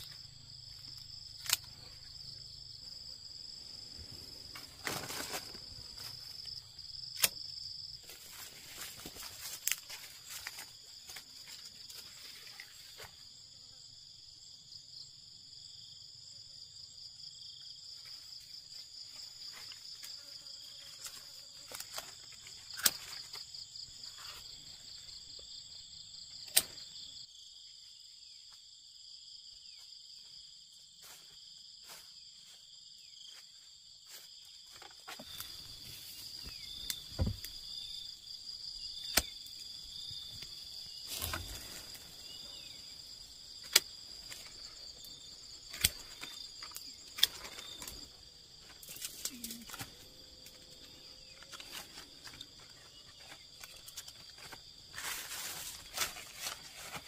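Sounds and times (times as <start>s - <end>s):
insects chirring: 0.0s - 57.0s
pruning shears snipping stems: 1.3s - 1.8s, 7.1s - 7.4s
leaves rustling: 3.8s - 7.3s, 7.9s - 13.1s, 40.3s - 49.9s, 51.4s - 57.0s.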